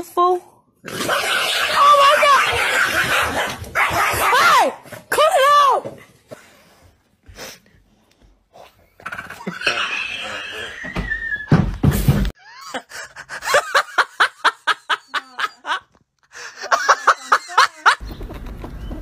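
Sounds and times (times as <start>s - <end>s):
person laughing hard: 12.4s - 18.0s.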